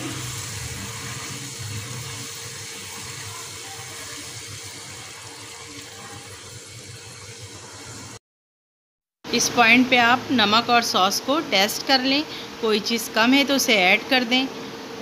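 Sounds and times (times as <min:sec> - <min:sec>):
sauce hissing in wok: 0:00.0 - 0:08.2.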